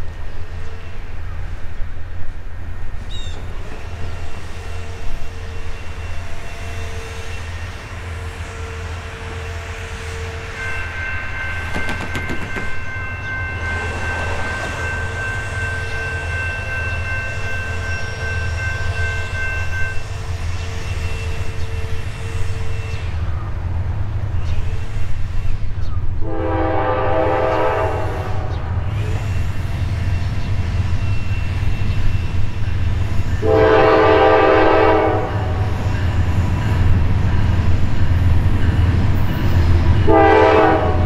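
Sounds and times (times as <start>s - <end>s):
low rumble of locomotive engine: 0.0s - 41.0s
diesel locomotive air horn: 3.6s - 11.1s, 26.2s - 30.4s, 33.4s - 35.9s, 40.0s - 41.0s.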